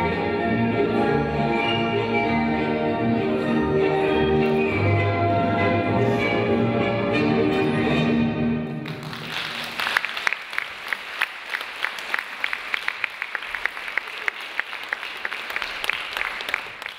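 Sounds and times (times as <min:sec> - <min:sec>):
orchestral music chord: 0:00.0 - 0:08.8
audience applauding: 0:08.8 - 0:16.9.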